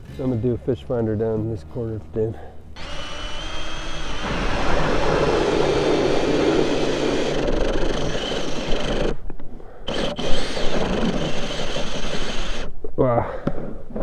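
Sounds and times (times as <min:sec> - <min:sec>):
drill auger grinding through ice: 0:02.8 - 0:09.2, 0:09.9 - 0:12.7.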